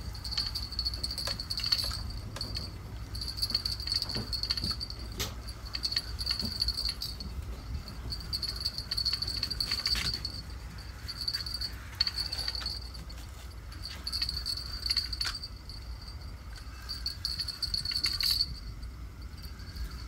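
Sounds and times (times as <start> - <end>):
insects trilling: 0.0 - 20.0
fishing gear clicks and knocks: 0.2 - 15.7.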